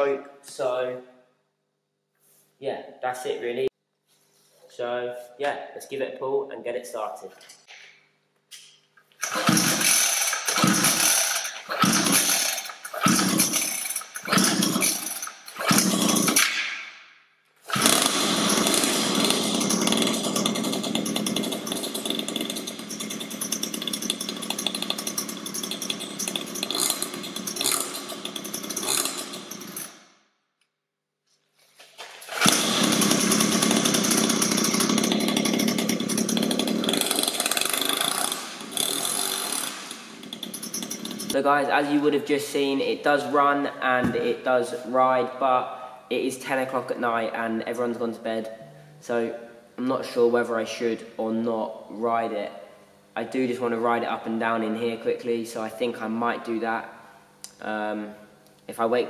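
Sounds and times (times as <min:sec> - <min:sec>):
two-stroke dirt bike engine running: 0:09.2 - 0:16.4, 0:17.7 - 0:30.0, 0:32.2 - 0:41.4
pull starter yanked: 0:09.2 - 0:16.7, 0:17.7 - 0:30.0, 0:32.1 - 0:41.4.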